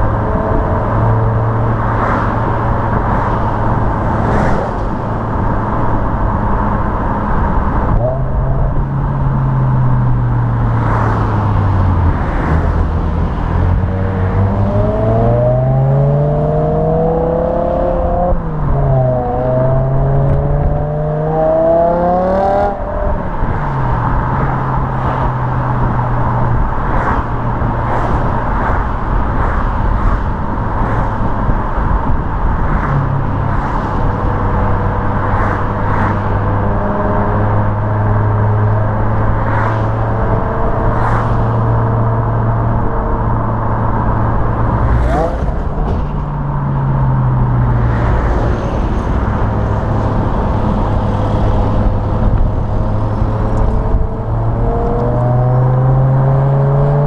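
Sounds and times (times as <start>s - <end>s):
car engine accelerating and cruising: 0.0s - 57.0s
tyre and road noise: 0.0s - 57.0s.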